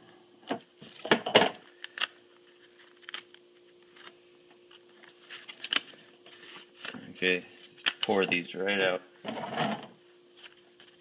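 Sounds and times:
paper envelope crackling: 1.7 - 4.2, 5.0 - 6.9.

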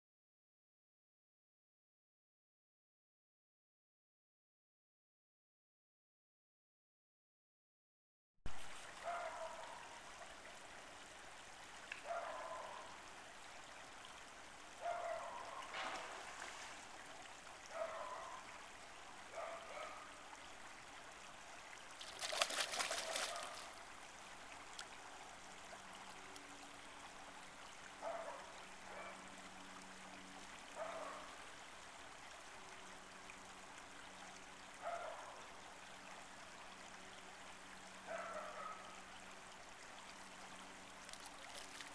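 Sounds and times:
creek water running: 8.5 - 41.9
fish splashing at surface: 22.0 - 23.7, 41.1 - 41.9.

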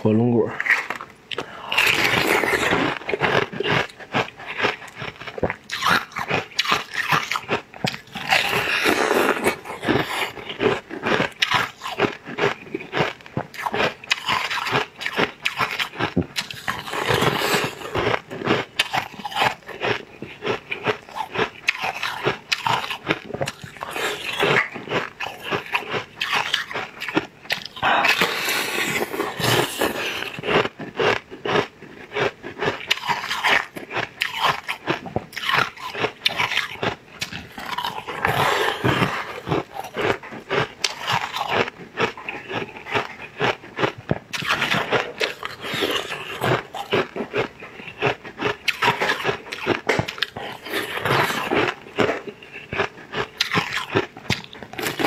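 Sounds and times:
biting and chewing cake: 0.0 - 55.0
wet mouth clicks: 52.6 - 54.7.

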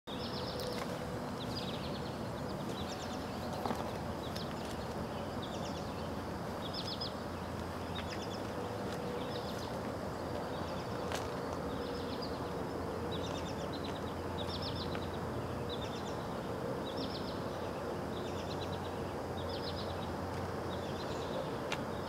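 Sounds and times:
steady low background noise: 0.1 - 22.0.

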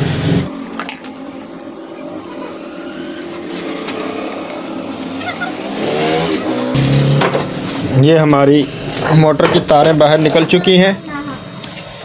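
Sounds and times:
vehicle engine running: 0.0 - 9.1.

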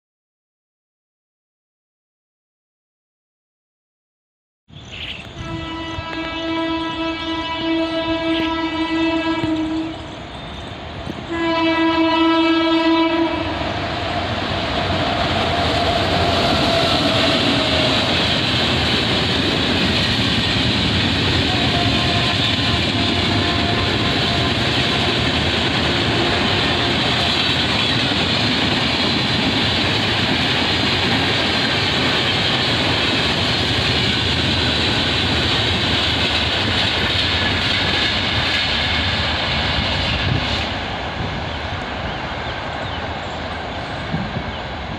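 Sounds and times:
train wheels rumbling on rails: 5.0 - 44.9
train horn blasts: 5.3 - 10.2, 11.3 - 13.9, 15.4 - 18.1, 21.4 - 27.8.

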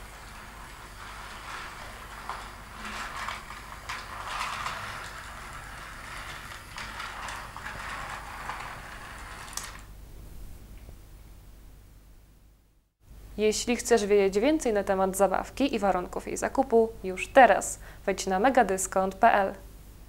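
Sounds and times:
toy train motor whirring and clicking: 0.0 - 9.9.

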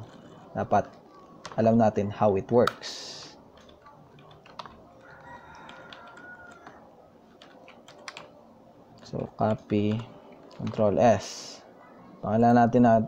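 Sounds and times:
computer keyboard key presses: 3.5 - 6.8, 7.4 - 8.3, 9.4 - 10.9.

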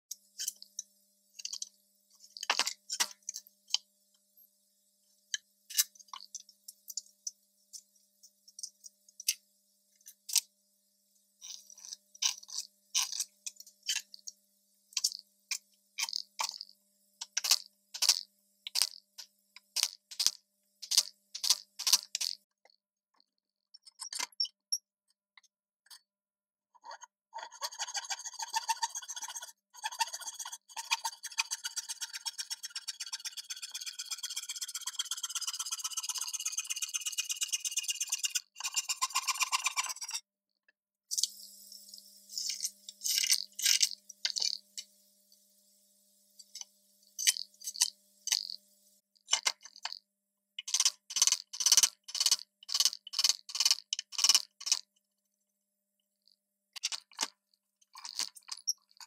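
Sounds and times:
pencil scratching and tool tapping: 15.0 - 22.5, 26.8 - 40.3, 50.6 - 54.9
fast steady pulsing sound: 28.6 - 40.0.

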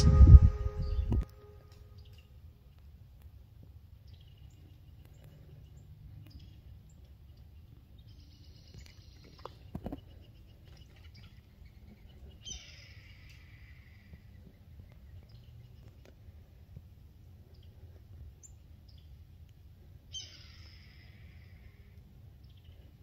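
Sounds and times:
low wind rumble: 0.0 - 4.9
bird calls: 4.1 - 16.1, 20.1 - 23.0.

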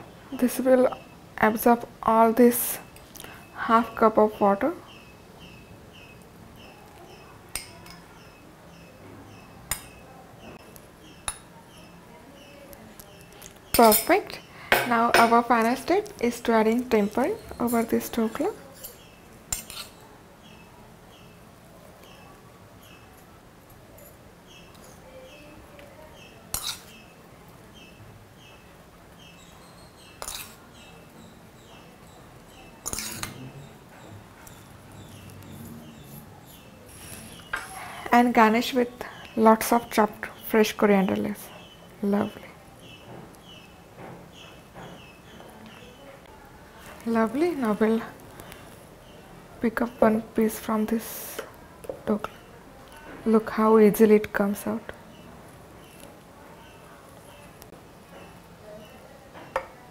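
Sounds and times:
metal spoon clinking on metal pan: 7.5 - 8.0, 32.8 - 33.4
metal spoon clinking on glass: 32.8 - 33.4.

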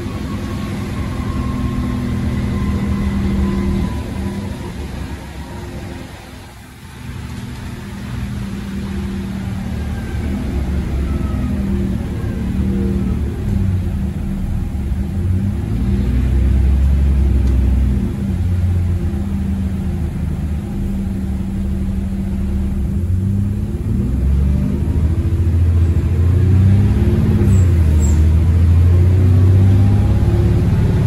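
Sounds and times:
diesel bus engine accelerating: 0.0 - 31.0.

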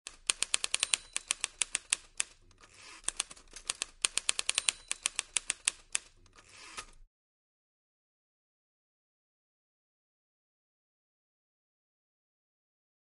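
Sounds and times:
typewriter key clacks: 0.1 - 2.4, 3.0 - 6.9.

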